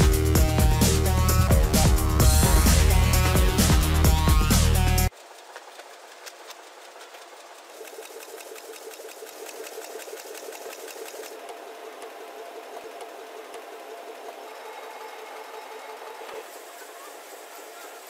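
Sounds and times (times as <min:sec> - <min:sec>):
paper machinery clattering: 0:05.1 - 0:18.0.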